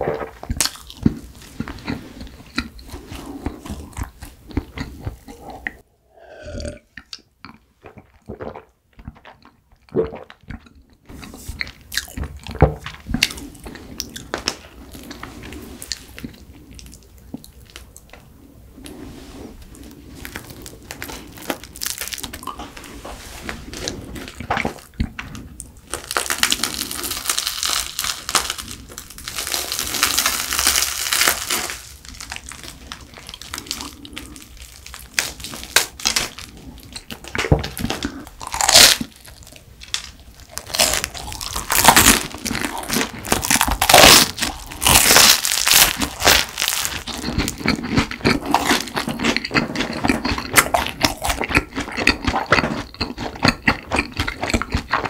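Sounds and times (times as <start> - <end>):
person gulping a drink: 0.0 - 15.2
chewing: 0.4 - 5.8, 23.7 - 55.0
crusty bread tearing: 20.2 - 24.9, 25.8 - 53.1.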